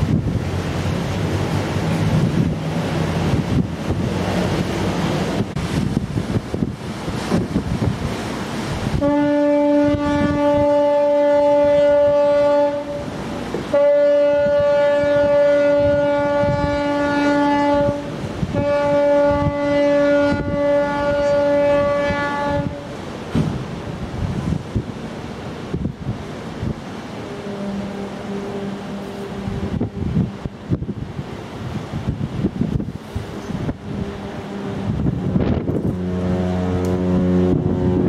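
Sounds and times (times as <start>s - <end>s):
wind on microphone: 0.0s - 27.1s, 28.2s - 38.0s
rush of the sea: 0.0s - 38.0s
ship's horn blasts: 8.8s - 23.5s, 26.7s - 30.7s, 33.0s - 38.0s.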